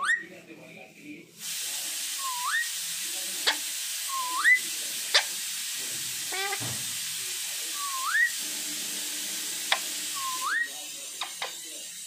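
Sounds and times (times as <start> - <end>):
parakeet whistling: 0.0 - 0.2, 2.2 - 2.7, 4.1 - 5.3, 7.8 - 8.4, 10.1 - 10.8
steady hiss: 1.3 - 12.0.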